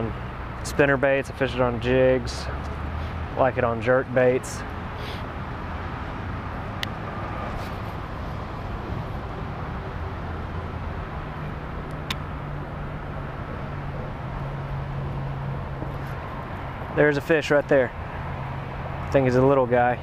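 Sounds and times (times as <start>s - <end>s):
distant road traffic rumble: 0.0s - 20.0s
engine hum: 0.0s - 20.0s.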